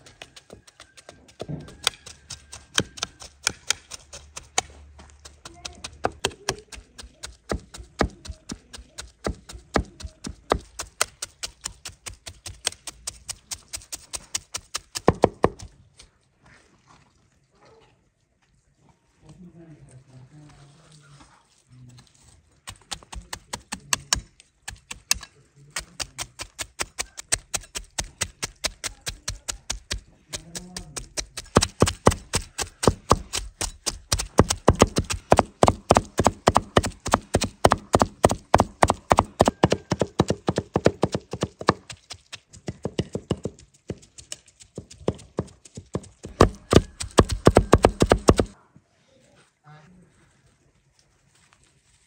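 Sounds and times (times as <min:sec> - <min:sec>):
knives chopping on wooden board: 0:01.4 - 0:15.7, 0:22.7 - 0:44.1, 0:44.8 - 0:48.6.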